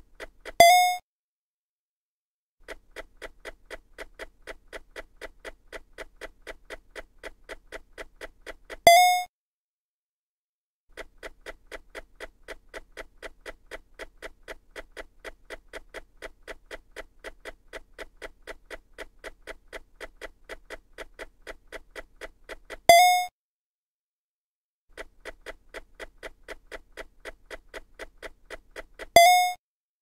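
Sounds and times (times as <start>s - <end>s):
clock-like ticking: 2.7s - 8.8s, 11.0s - 22.8s, 25.0s - 29.6s.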